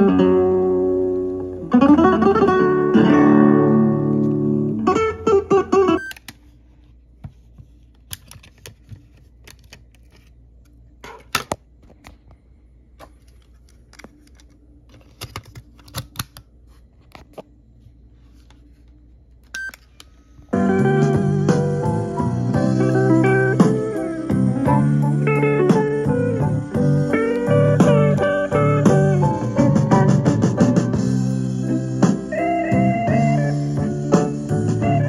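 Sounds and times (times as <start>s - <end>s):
guitar music from small speaker: 0.0s - 6.0s, 20.5s - 35.0s.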